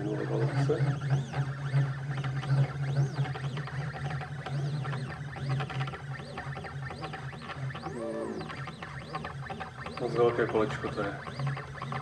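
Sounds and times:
stepper motors whining: 6.0s - 12.0s.

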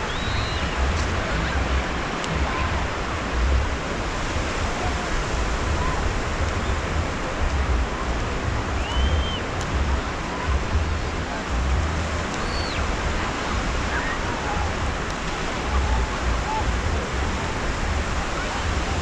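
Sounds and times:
waves breaking on beach: 0.0s - 19.0s
wind on microphone: 0.0s - 19.0s.

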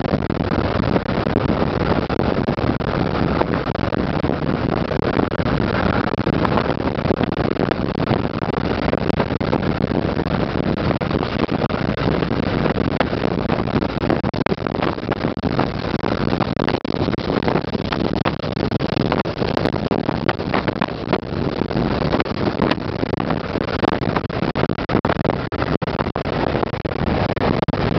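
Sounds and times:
car road and wind noise: 0.4s - 27.6s.

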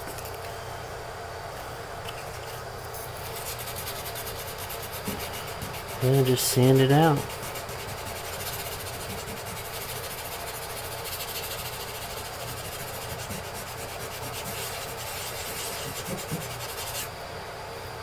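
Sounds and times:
wet sandpaper rubbing: 3.1s - 17.1s.

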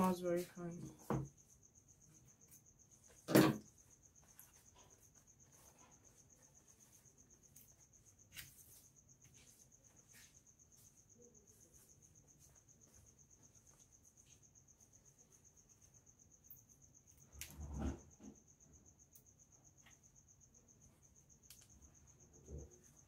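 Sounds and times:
cricket trilling: 0.0s - 23.0s.

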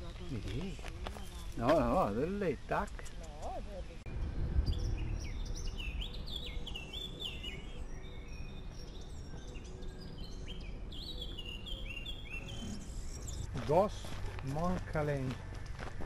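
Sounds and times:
songbirds chirping: 0.0s - 16.0s
low steady rumble: 3.9s - 6.5s.

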